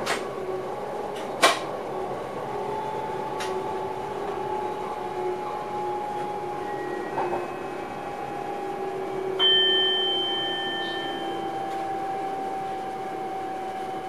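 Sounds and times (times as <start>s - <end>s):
electric train whine: 0.0s - 14.0s
bell-like chime: 6.7s - 14.0s.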